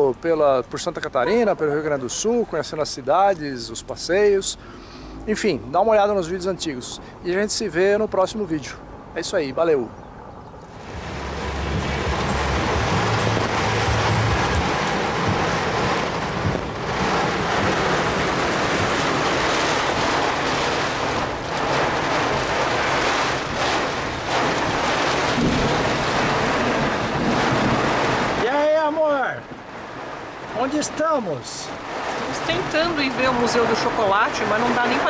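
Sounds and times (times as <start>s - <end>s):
low rumble: 10.8s - 22.4s
heavy rain on car roof: 10.8s - 35.0s.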